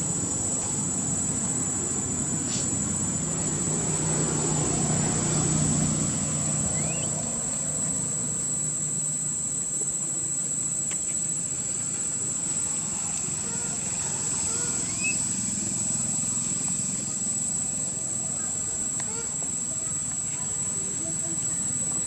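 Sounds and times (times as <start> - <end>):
insects droning: 0.0 - 22.0
motor vehicle engine hum: 0.0 - 22.0
brief rising chirp: 3.7 - 9.5, 14.4 - 18.3.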